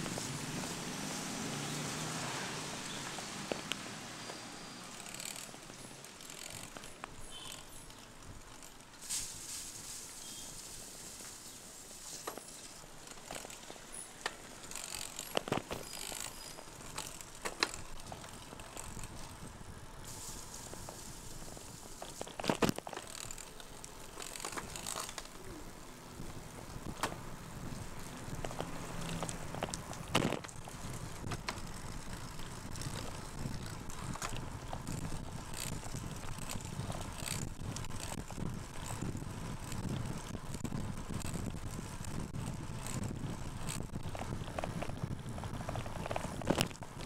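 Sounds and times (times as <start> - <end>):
bike tyres hissing on wet road: 0.0 - 6.0, 9.0 - 12.9, 19.5 - 22.4
freewheel ratcheting: 2.8 - 8.8, 12.2 - 19.6, 20.8 - 47.0.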